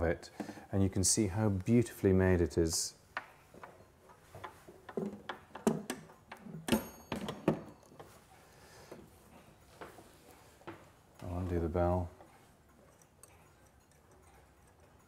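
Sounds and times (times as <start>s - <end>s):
wooden clock case knocking and scraping: 3.2s - 8.1s.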